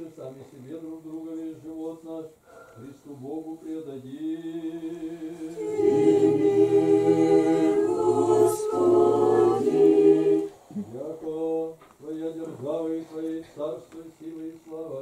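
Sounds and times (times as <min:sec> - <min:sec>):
choir chanting a cappella: 0:03.4 - 0:13.4.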